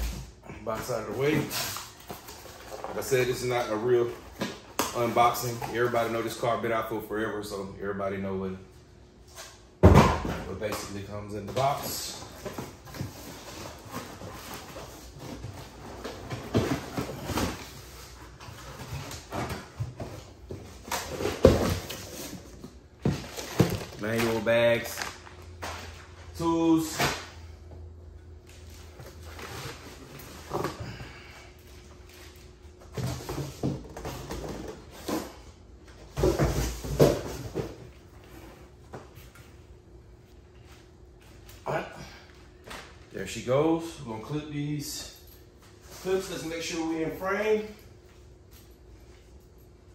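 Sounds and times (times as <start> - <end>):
cardboard and plastic rustling: 10.4 - 26.2.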